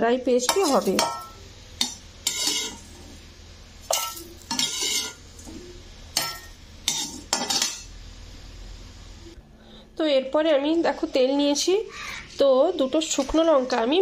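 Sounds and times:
metal utensil scraping a pan: 0.5s - 3.2s, 3.8s - 5.6s, 6.2s - 7.9s.

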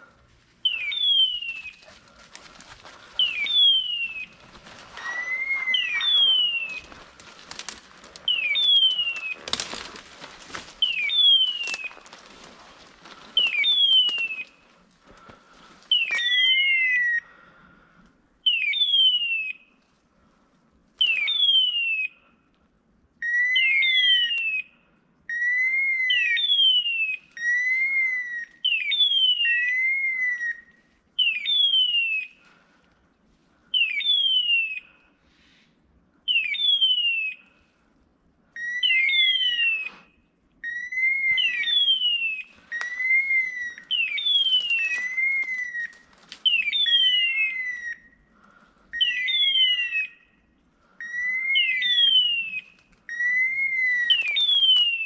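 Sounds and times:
faint rustle of brush: 1.4s - 14.8s.

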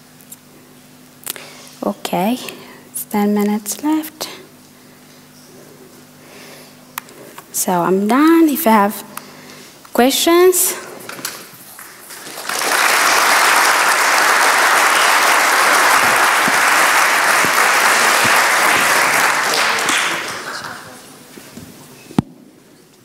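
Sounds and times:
audience applauding: 11.7s - 21.1s.

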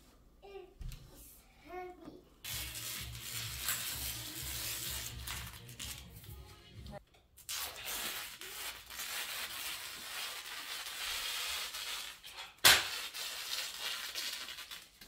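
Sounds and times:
tape ripping off floor: 2.5s - 6.3s, 7.4s - 15.0s.

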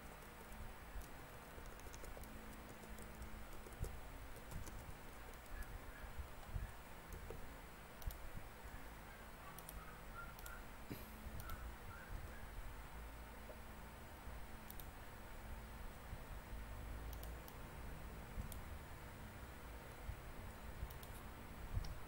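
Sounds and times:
low room hum: 0.0s - 22.0s
keyboard keystroke clicks: 1.0s - 5.6s, 8.0s - 8.2s, 14.7s - 14.9s, 17.1s - 17.6s, 20.9s - 21.2s.

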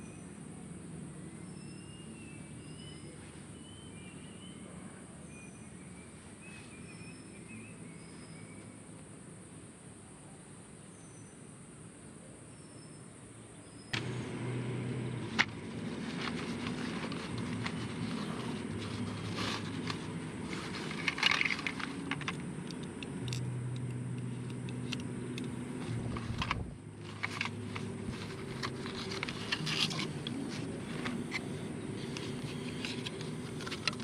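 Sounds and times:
low engine hum: 13.8s - 34.0s
cloth rustling: 14.9s - 22.6s, 25.5s - 34.0s
metal parts clicking and clinking: 15.4s - 34.0s.

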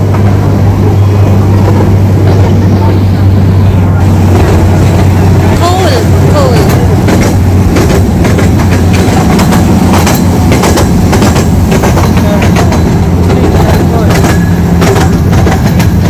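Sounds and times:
train rumbling on rails: 0.0s - 16.0s
sharp clicks and knocks: 6.6s - 16.0s.

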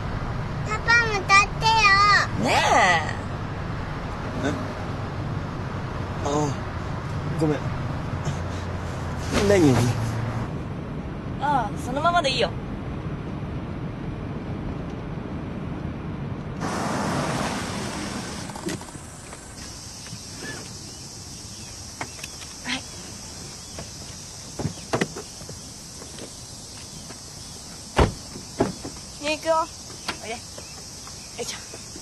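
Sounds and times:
low vehicle rumble: 0.0s - 32.0s
insect chorus: 16.6s - 32.0s.

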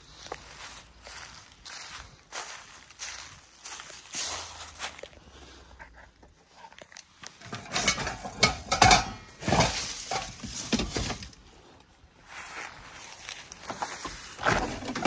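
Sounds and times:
hard objects clinking and knocking: 7.4s - 11.3s.

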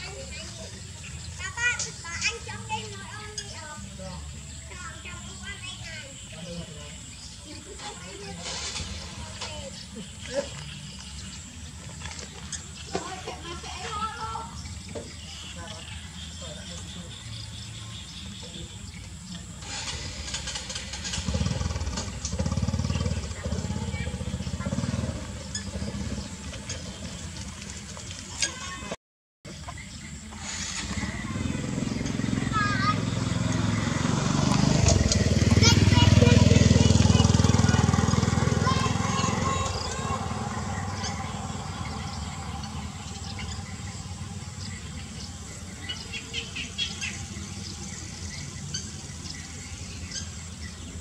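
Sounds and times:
small motorcycle engine running: 0.0s - 16.0s, 17.3s - 28.3s, 29.5s - 51.0s
engine running with low pulse: 29.5s - 51.0s.

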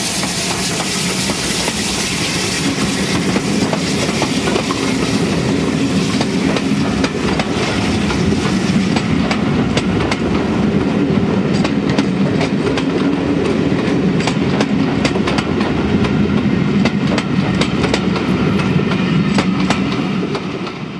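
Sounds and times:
steam locomotive pulling away: 0.0s - 16.2s
train wheels clicking over rail joints: 0.1s - 20.9s.

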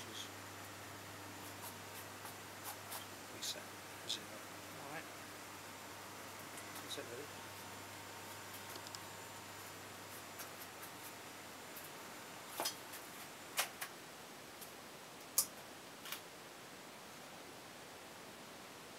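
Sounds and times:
faint hiss: 0.0s - 18.9s
light clicks and taps: 8.6s - 9.0s.

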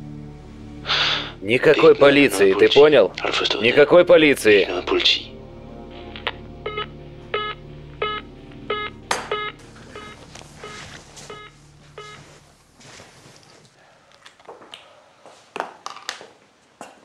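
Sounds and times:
low steady musical drone: 0.0s - 13.6s.

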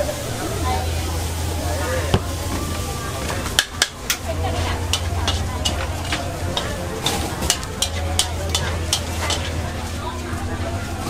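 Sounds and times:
frying sizzle: 0.0s - 11.0s
low hum: 0.0s - 11.0s
metal utensil clinking on pan: 3.6s - 9.7s.

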